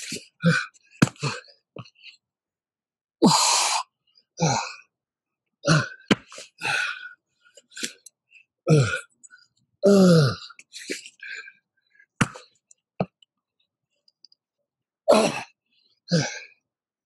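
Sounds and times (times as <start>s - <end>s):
man grunting with effort: 5.7s - 7.0s, 8.7s - 9.1s, 9.8s - 10.5s, 15.1s - 15.5s
man breathing forcefully: 5.7s - 7.1s.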